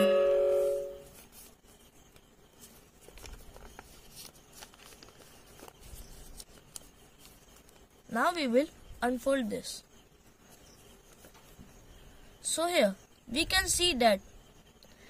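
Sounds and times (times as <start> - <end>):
ringing tone: 0.0 - 1.2
paper rustling and crinkling: 1.0 - 7.9.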